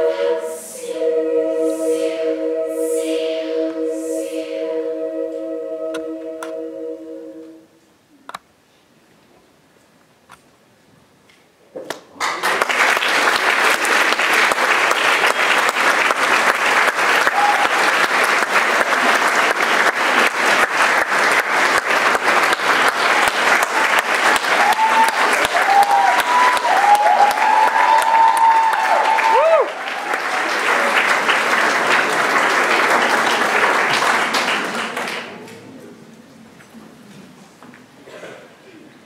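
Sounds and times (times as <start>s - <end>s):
choir final chord: 0.0s - 7.8s
audience applause: 12.2s - 35.6s
high gliding cheers: 17.2s - 18.0s, 23.2s - 30.9s.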